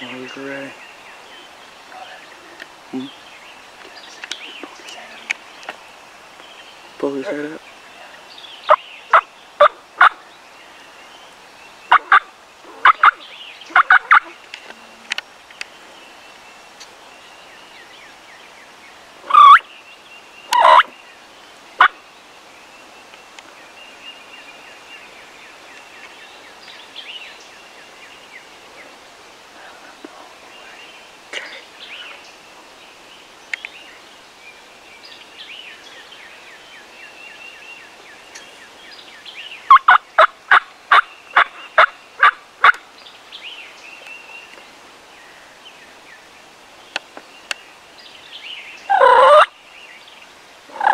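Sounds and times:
faint songbird calls: 0:00.0 - 0:50.9
sharp turkey calls: 0:08.7 - 0:10.2, 0:11.9 - 0:14.4, 0:19.2 - 0:19.6, 0:20.5 - 0:20.9, 0:39.7 - 0:42.8, 0:48.9 - 0:49.5
turkeys gobbling loudly: 0:11.9 - 0:14.4, 0:19.2 - 0:19.6, 0:20.5 - 0:20.9, 0:39.7 - 0:42.8, 0:48.9 - 0:49.5.

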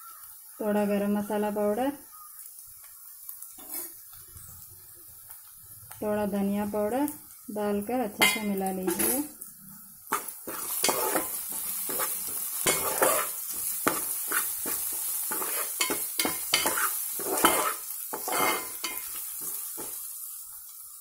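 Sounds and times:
frying sizzle: 0:00.0 - 0:21.0
spatula scraping metal pan: 0:03.6 - 0:03.9, 0:10.1 - 0:19.9.

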